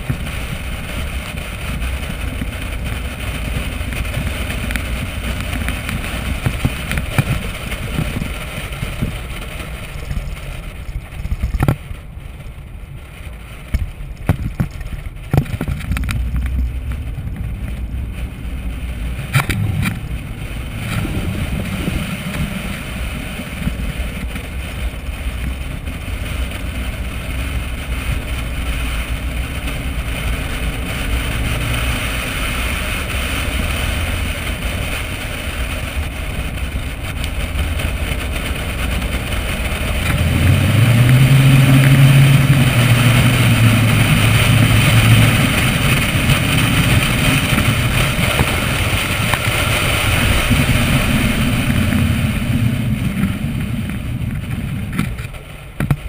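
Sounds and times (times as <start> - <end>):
wind rushing over microphone: 0.0 - 56.0.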